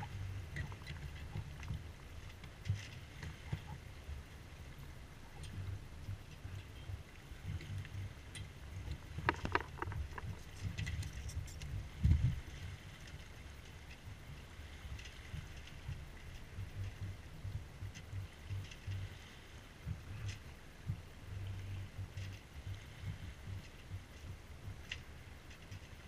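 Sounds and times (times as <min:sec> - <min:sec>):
water along boat hull: 0:00.0 - 0:26.0
wind on microphone: 0:00.0 - 0:26.0.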